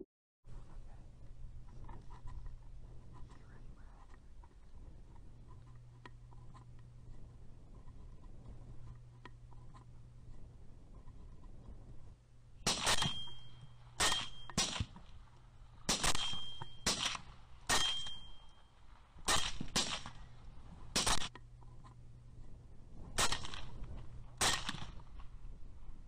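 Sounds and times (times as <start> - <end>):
rifle shots: 12.6 - 18.4, 19.2 - 20.3, 20.9 - 21.3, 23.2 - 25.2.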